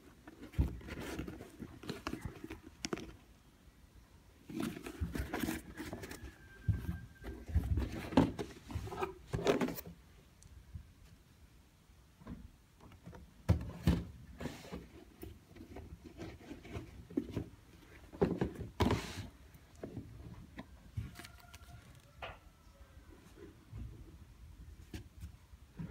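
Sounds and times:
cardboard rustling: 0.0s - 3.3s, 4.4s - 10.0s, 13.8s - 22.2s.

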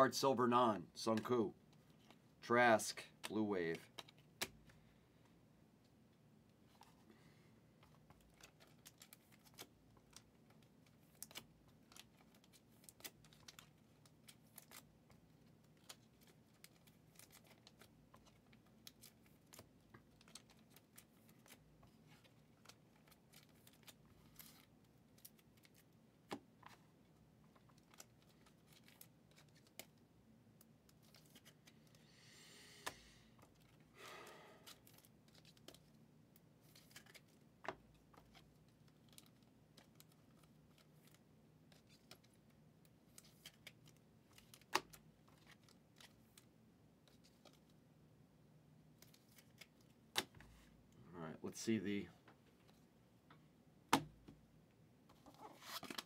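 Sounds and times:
cards clicking and snapping: 3.2s - 4.7s, 7.8s - 14.9s, 36.7s - 42.4s, 43.1s - 46.5s
cards rustling: 7.8s - 30.0s, 30.6s - 32.0s, 32.8s - 36.0s, 36.6s - 47.8s, 49.0s - 50.6s, 55.1s - 56.0s.

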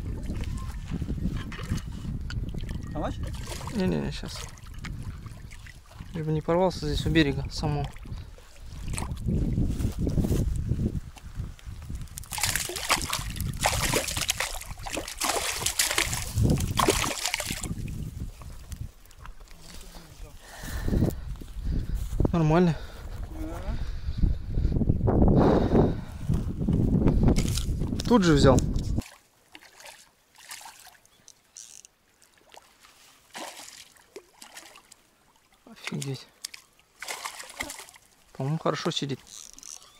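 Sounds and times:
fish splashing in shallow water: 0.1s - 6.2s, 7.8s - 9.4s, 11.8s - 19.7s, 29.0s - 38.4s.

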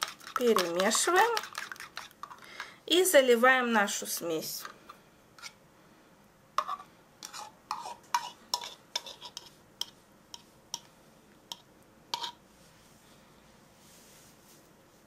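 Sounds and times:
spoon scraping and clinking bowl: 0.0s - 2.4s, 6.6s - 10.5s, 11.5s - 12.4s.

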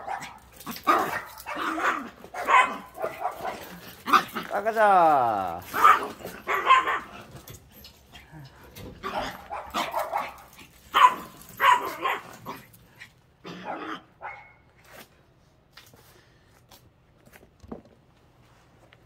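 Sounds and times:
dog barking: 0.0s - 4.3s, 5.7s - 7.2s, 9.0s - 12.6s, 13.6s - 14.6s.

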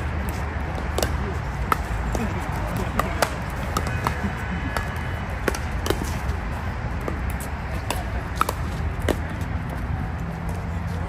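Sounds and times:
paddles hitting plastic ball: 0.2s - 6.3s.

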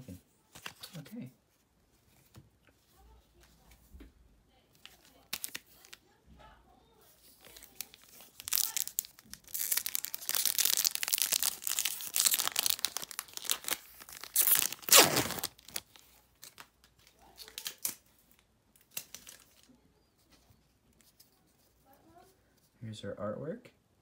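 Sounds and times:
foil wrapper crinkling: 4.8s - 6.0s, 7.2s - 19.8s
foil wrapper tearing: 7.4s - 18.1s.

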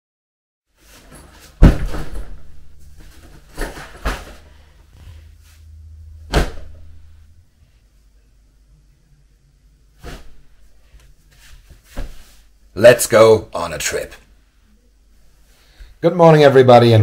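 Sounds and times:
low hum: 1.7s - 11.2s.

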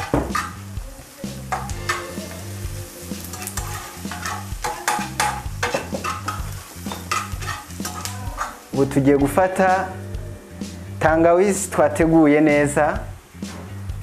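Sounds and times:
spatula scraping frying pan: 0.0s - 0.6s, 1.5s - 8.7s
background music: 0.0s - 14.0s
vegetables sizzling in oil: 0.0s - 14.0s.

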